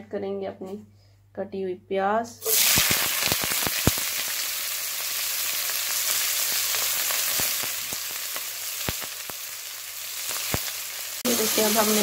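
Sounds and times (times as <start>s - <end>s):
oil popping: 2.4s - 4.6s
onions sizzling in hot oil: 2.4s - 12.0s.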